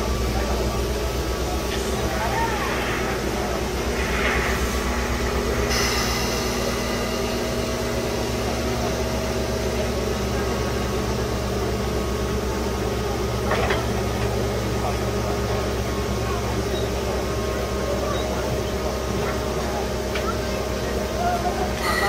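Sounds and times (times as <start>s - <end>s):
air compressors pulsing hum: 0.0s - 10.6s
air hissing: 1.8s - 8.9s.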